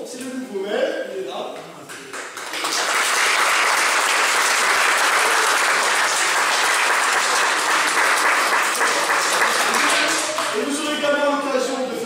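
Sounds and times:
crowd applauding: 2.1 - 10.8.

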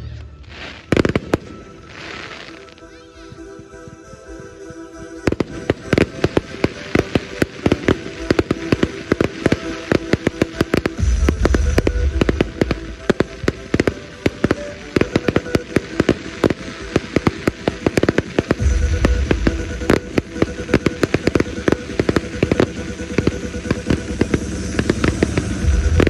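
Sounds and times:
faint music: 0.0 - 26.0
fireworks bangs and crackling: 0.3 - 26.0
deep firework blasts: 0.4 - 2.7, 5.0 - 26.0.

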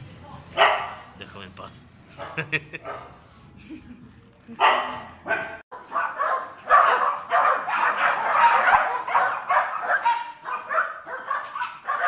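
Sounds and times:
dogs barking and yipping: 0.6 - 1.1, 4.6 - 12.0.

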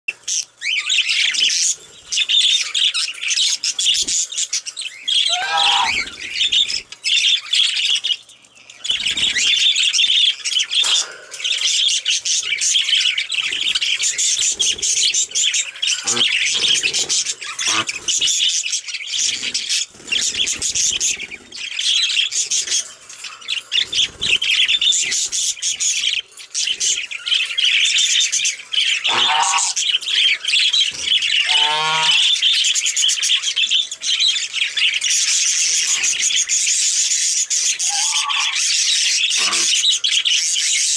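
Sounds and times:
budgerigars chattering and chirping: 0.1 - 40.9
budgerigar squawks: 5.2 - 6.2, 15.9 - 18.4, 29.0 - 29.8, 31.4 - 32.4, 37.8 - 40.0.

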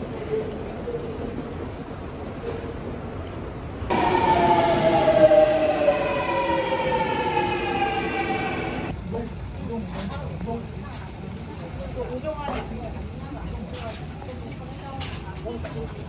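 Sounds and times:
station noise: 3.9 - 8.9
subway train motor whine: 3.9 - 9.0.

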